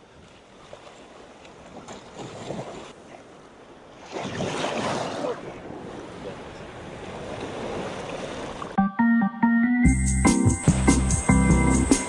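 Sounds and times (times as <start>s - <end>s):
surf washing and foaming: 4.0s - 8.8s.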